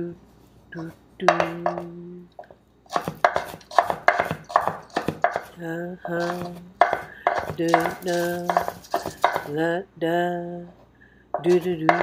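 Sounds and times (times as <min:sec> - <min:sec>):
knife chopping on wooden board: 0:02.9 - 0:09.5
person singing held notes: 0:05.3 - 0:12.0.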